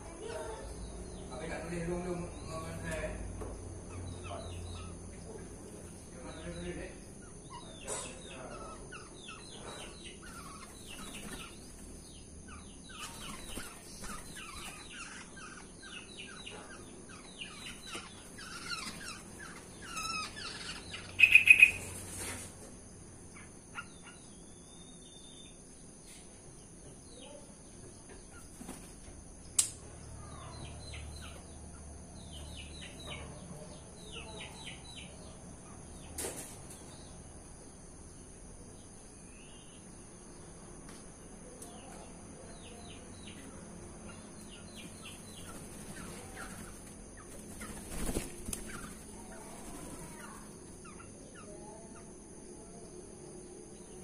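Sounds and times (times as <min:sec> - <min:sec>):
birds chirping: 0:00.0 - 0:54.0
loud bird call: 0:13.0 - 0:22.0.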